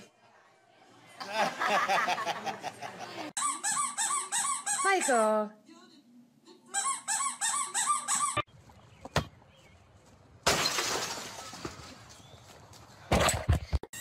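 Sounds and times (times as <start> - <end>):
squeaks: 3.4 - 5.2, 6.8 - 8.5
shattering crash: 10.4 - 12.1.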